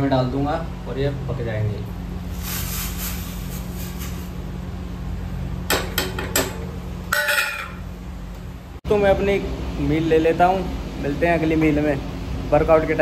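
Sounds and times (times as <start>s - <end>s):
steady low hum: 0.0s - 13.0s
dishes and utensils clinking: 5.7s - 7.8s.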